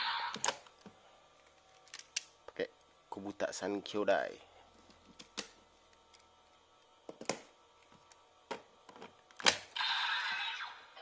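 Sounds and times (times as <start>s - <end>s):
electronic toy sound effect: 0.0s - 0.5s, 9.7s - 11.0s.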